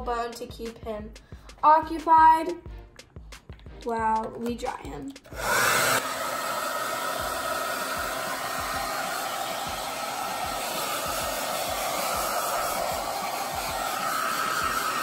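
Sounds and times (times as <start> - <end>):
hair dryer blowing: 5.3 - 15.0.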